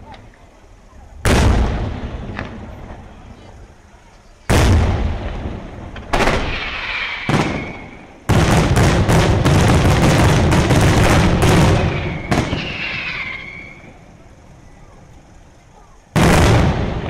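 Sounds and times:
fireworks bangs: 0:01.2 - 0:03.5, 0:04.4 - 0:14.2, 0:16.1 - 0:17.0.

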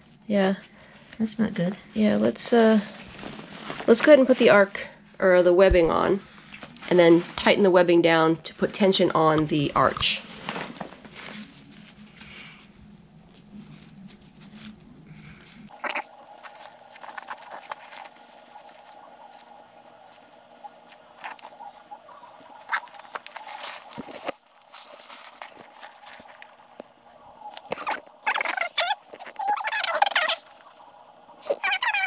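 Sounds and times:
fabric rustling and scratching: 0:02.8 - 0:04.6, 0:10.1 - 0:32.0.

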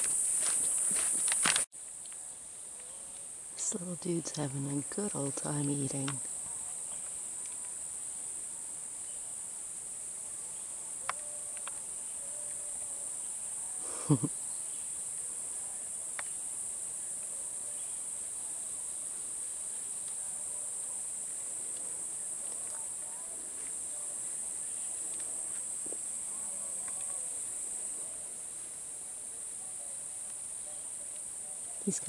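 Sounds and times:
faint clicks: 0:26.8 - 0:27.2.

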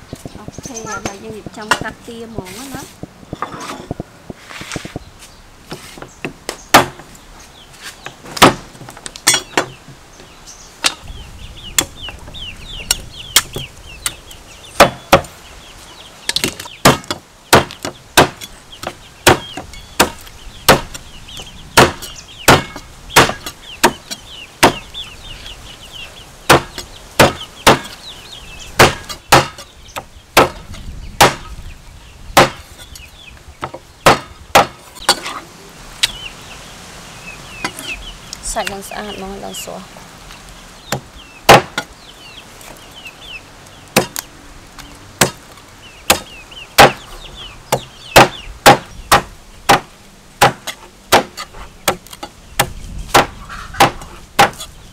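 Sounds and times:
cleaver chopping on wooden board: 0:05.7 - 0:07.1, 0:08.3 - 0:08.7, 0:14.8 - 0:15.3, 0:16.4 - 0:21.0, 0:21.8 - 0:24.9, 0:26.5 - 0:28.0, 0:28.8 - 0:30.6, 0:31.2 - 0:31.5, 0:32.4 - 0:32.6, 0:33.6 - 0:35.3, 0:40.9 - 0:41.9, 0:44.0 - 0:44.2, 0:45.2 - 0:45.4, 0:46.1 - 0:47.0, 0:47.7 - 0:54.7.

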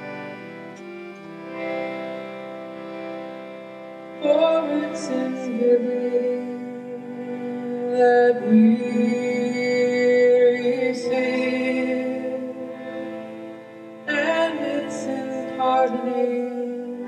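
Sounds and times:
woman singing: 0:04.2 - 0:12.8, 0:14.1 - 0:17.0.

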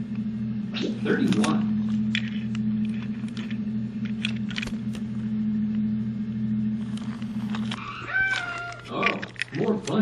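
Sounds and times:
small electric toy motor humming: 0:06.8 - 0:10.0.

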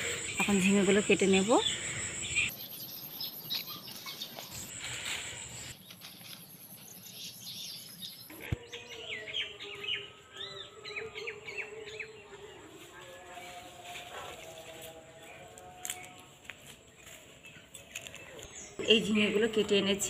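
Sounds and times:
birds chirping: 0:00.0 - 0:14.4, 0:15.0 - 0:20.0
leaves and vines rustling: 0:03.6 - 0:07.1, 0:12.7 - 0:18.7.

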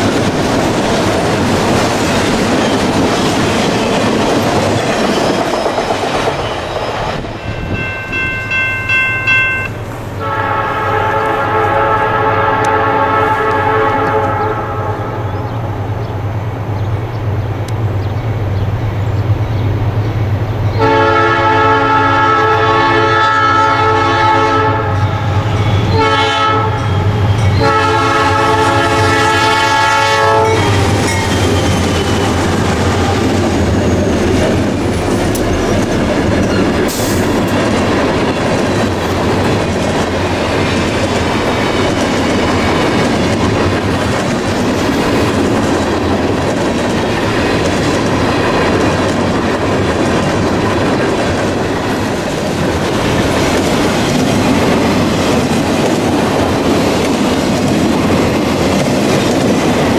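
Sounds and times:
train wheels clattering: 0:00.0 - 0:10.2, 0:25.2 - 0:59.9
diesel locomotives rumbling: 0:00.0 - 0:59.9
locomotive air horn blasts: 0:10.2 - 0:15.3, 0:20.8 - 0:30.8.

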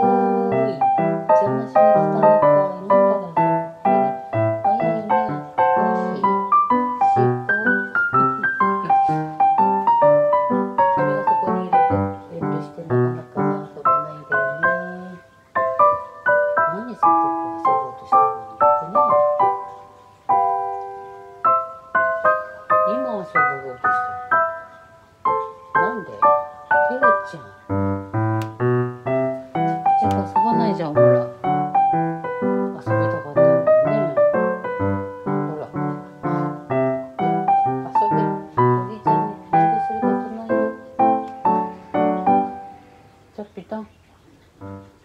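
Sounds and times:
slow piano melody: 0:00.0 - 0:45.0.

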